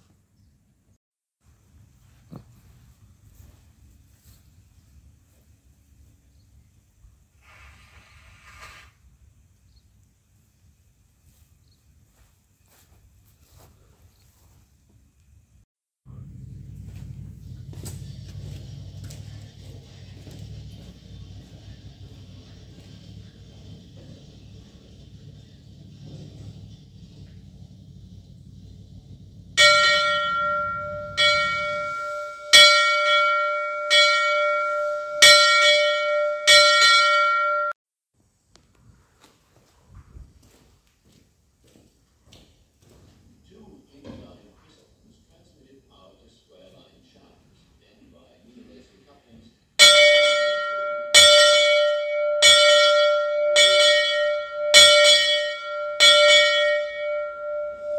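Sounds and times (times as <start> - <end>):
locomotive bell clanging: 29.6 - 37.8, 49.8 - 57.9.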